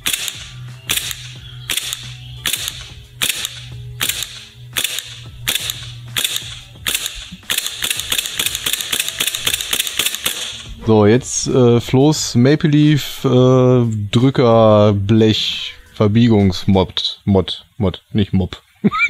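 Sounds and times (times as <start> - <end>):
airsoft pistol shots: 0.0 - 10.8.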